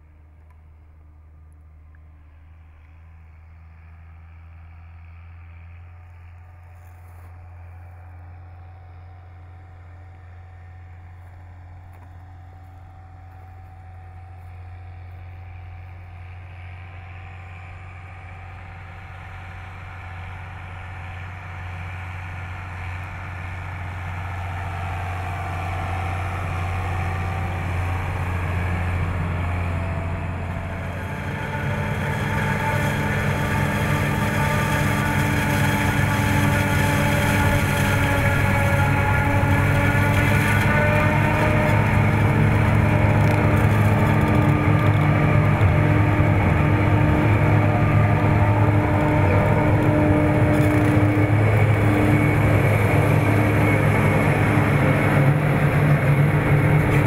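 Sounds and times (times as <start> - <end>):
tractor hauling trailer: 0.0 - 57.0
forage harvester chopping: 30.5 - 57.0.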